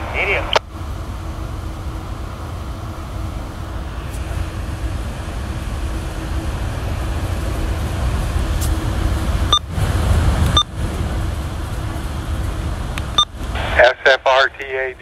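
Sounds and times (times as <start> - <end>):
radio noise: 0.0 - 0.6, 13.6 - 15.0
rail car rumbling: 0.0 - 15.0.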